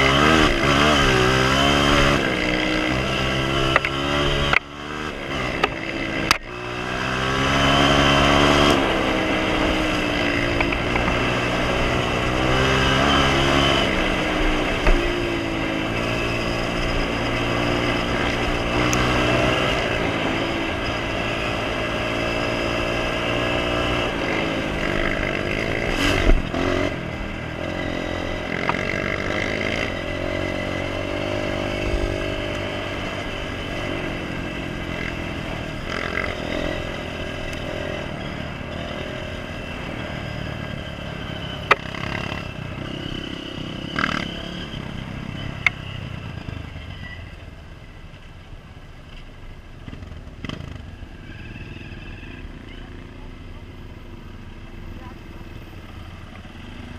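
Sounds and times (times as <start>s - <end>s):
dirt bike engine shifting gears: 0.0s - 39.6s.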